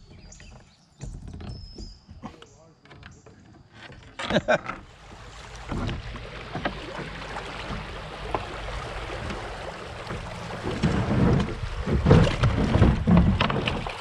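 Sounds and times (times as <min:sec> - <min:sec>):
river water splashing: 0:04.2 - 0:14.0.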